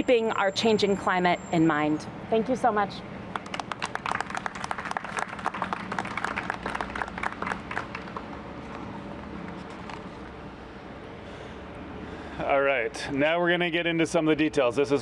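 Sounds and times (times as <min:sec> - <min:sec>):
small group applauding: 0:03.3 - 0:08.4.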